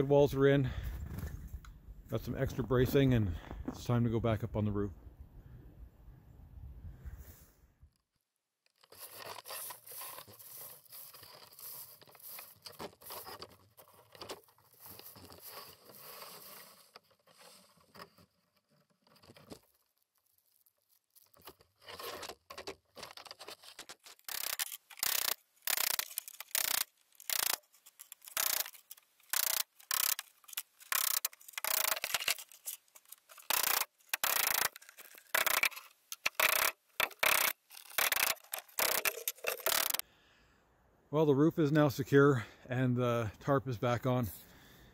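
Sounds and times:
frozen tarp rustling and scraping: 8.8s - 29.2s
hammer driving nails: 33.4s - 40.0s.

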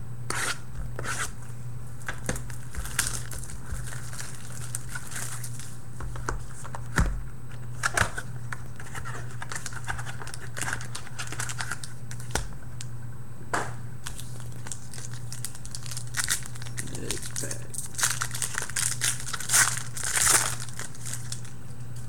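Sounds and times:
steady low hum: 0.0s - 22.0s
wrappers crinkling: 2.0s - 5.8s, 14.0s - 22.0s.

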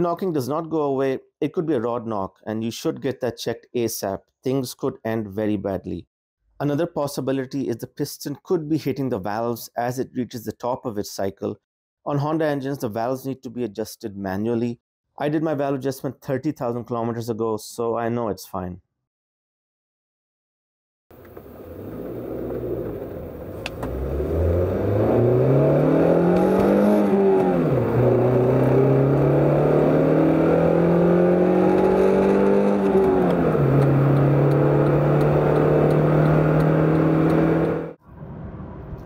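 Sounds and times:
car engine revving high in cabin: 21.2s - 38.0s.

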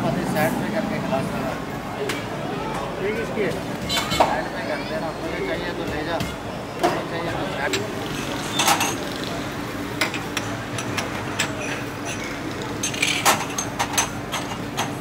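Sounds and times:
dishes and utensils clinking: 3.8s - 4.4s, 7.6s - 9.3s, 10.0s - 15.0s.

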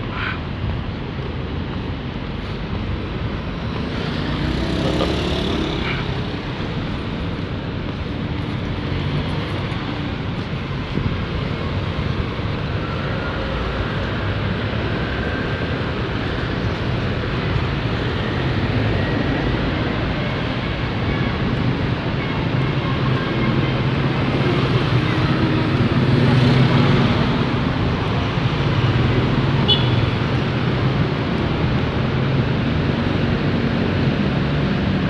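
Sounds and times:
cars and motorcycles passing: 0.0s - 35.0s.

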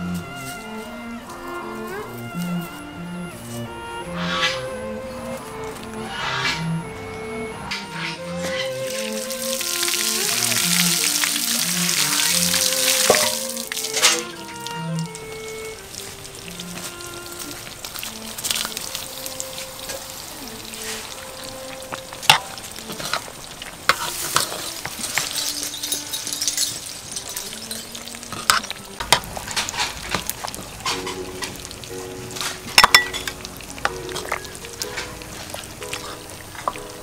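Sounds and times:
broth boiling and bubbling: 8.5s - 37.0s
ladle clinking against pot: 13.1s - 14.3s, 22.2s - 23.2s, 32.4s - 35.1s.

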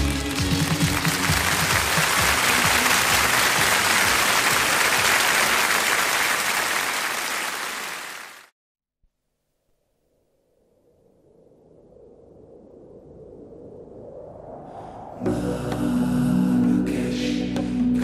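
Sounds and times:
music: 0.0s - 5.0s, 15.2s - 18.0s
audience applauding: 0.0s - 8.5s.

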